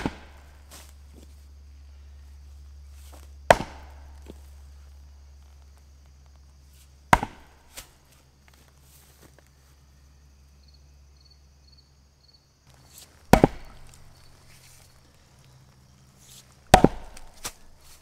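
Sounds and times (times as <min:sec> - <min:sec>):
axe chopping wood: 0:00.0 - 0:01.2, 0:03.1 - 0:04.6, 0:07.0 - 0:08.0, 0:12.7 - 0:15.0, 0:16.3 - 0:18.0.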